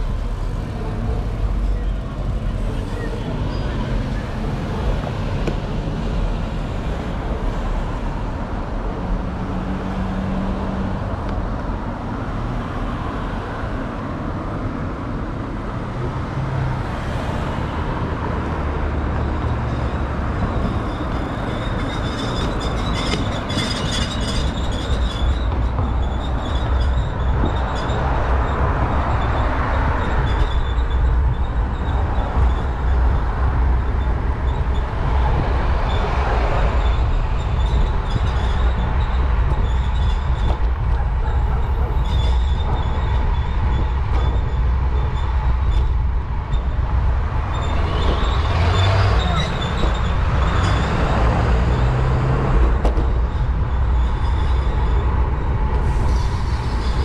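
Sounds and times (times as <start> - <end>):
bicycle road rumble: 0.0 - 57.0
cars passing: 0.0 - 57.0
wind on microphone: 19.3 - 57.0
high-pitched squeal: 41.2 - 52.4, 53.2 - 57.0.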